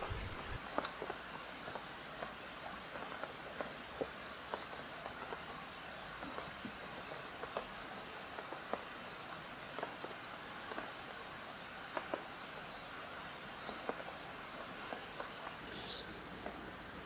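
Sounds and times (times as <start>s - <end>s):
light rain hissing: 0.0s - 2.7s, 9.2s - 17.0s.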